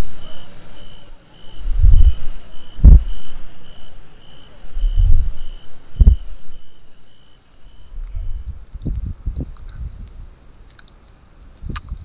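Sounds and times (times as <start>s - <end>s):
faint high trills: 0.0s - 8.5s
crickets chirping: 0.0s - 12.0s
loud low thuds: 1.7s - 3.3s, 4.8s - 6.5s
hiss with small clicks: 7.2s - 12.0s.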